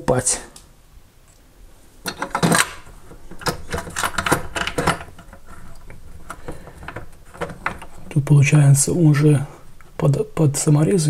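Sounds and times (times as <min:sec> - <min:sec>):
plastic bracket clicks and knocks: 0:02.1 - 0:08.0
taps and scrapes: 0:02.1 - 0:08.1.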